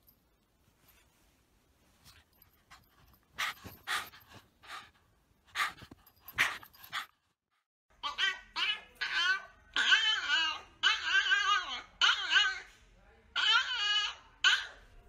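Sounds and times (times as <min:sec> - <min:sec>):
dog panting hard: 0:02.3 - 0:07.3.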